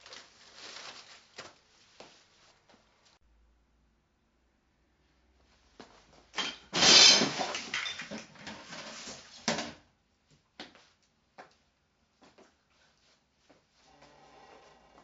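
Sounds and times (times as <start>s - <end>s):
objects clattering: 6.4s - 9.8s.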